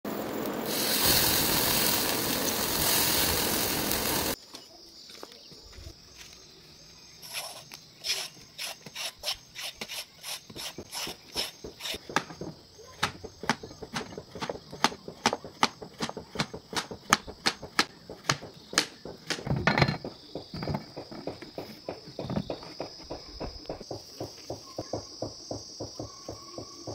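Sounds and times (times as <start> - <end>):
vegetable slices sizzling: 0.1 - 4.4.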